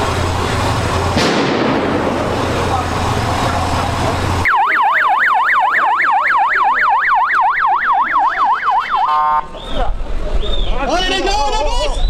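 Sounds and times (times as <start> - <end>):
low street hum: 0.0 - 12.0
siren yelping: 4.4 - 9.4.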